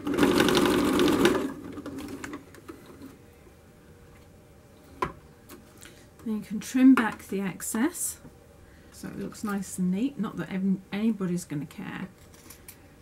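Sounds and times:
sewing machine stitching fast: 0:00.0 - 0:02.4.

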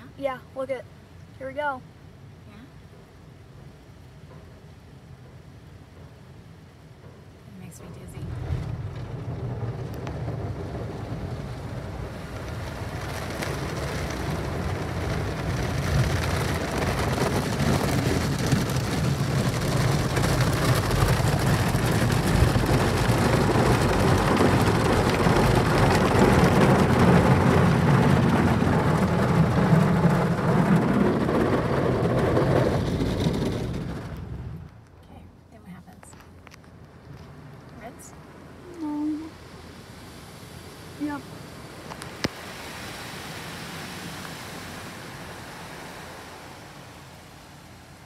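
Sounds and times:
water spraying on windshield: 0:07.9 - 0:34.0, 0:40.1 - 0:48.0.

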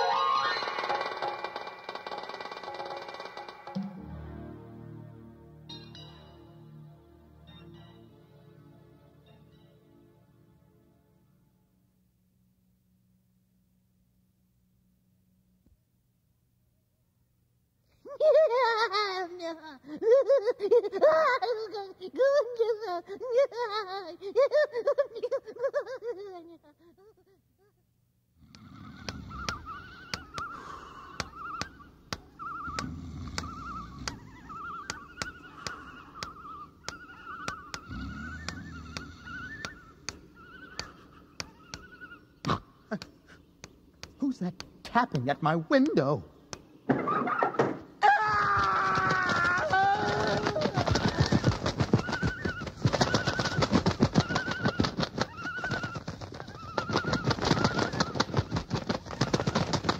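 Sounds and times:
wavering tones: 0:00.0 - 0:02.0
rapid tapping on window: 0:00.8 - 0:03.8, 0:48.5 - 0:59.9.

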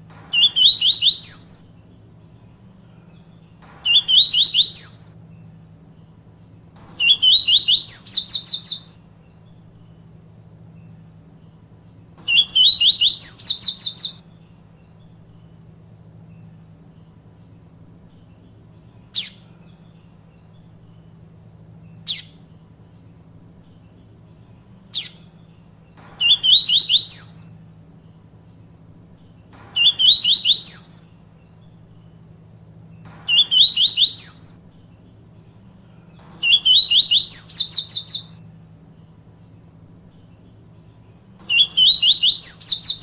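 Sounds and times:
faint low hum: 0:00.0 - 0:43.0
bird singing whistled phrases: 0:00.3 - 0:01.6, 0:03.8 - 0:05.2, 0:07.0 - 0:09.0, 0:12.2 - 0:14.2, 0:24.9 - 0:25.3, 0:26.2 - 0:27.5, 0:29.8 - 0:31.1, 0:33.3 - 0:34.6, 0:36.4 - 0:38.4, 0:41.5 - 0:43.0.

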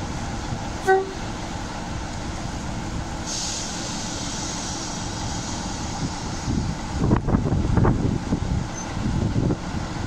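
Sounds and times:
diesel locomotive engine rumble: 0:00.0 - 0:10.0
air hissing: 0:03.2 - 0:06.8.

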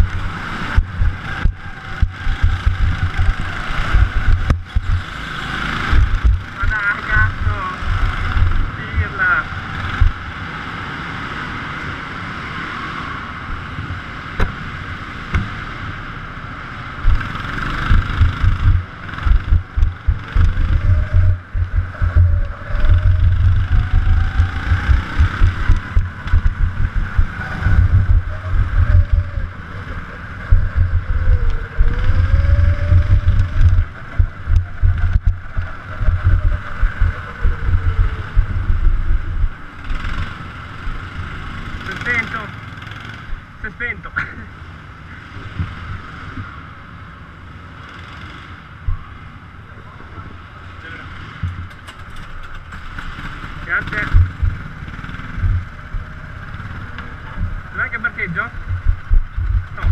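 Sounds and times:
wind buffeting on microphone: 0:00.0 - 0:10.2, 0:17.0 - 0:40.4, 0:54.0 - 0:59.9
go-kart engine: 0:00.0 - 0:59.9.

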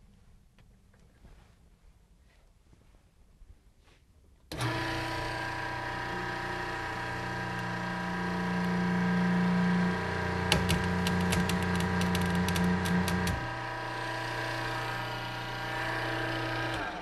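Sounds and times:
hydraulic pump humming: 0:04.5 - 0:17.0.

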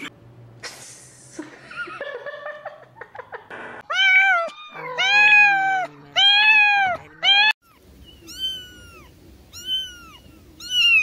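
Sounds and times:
cat meowing: 0:03.9 - 0:11.0.

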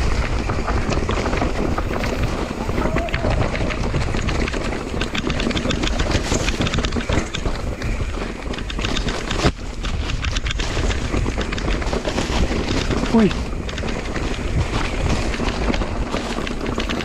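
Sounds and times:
mountain bike rolling on dirt: 0:00.0 - 0:17.0
wind on microphone: 0:00.0 - 0:17.0.

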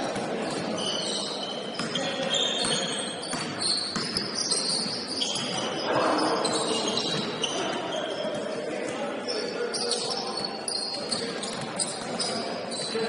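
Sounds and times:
sneakers squeaking: 0:00.0 - 0:13.0
ball bouncing: 0:02.6 - 0:05.7.

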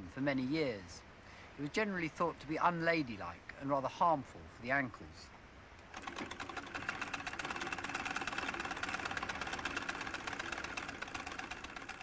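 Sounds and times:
sewing machine clattering: 0:05.9 - 0:12.0.

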